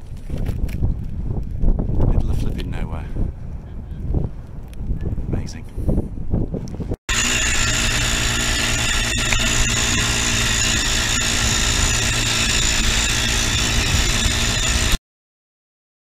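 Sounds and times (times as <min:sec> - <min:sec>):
wind noise: 0:00.0 - 0:15.0
quad bike engine running: 0:07.1 - 0:15.0.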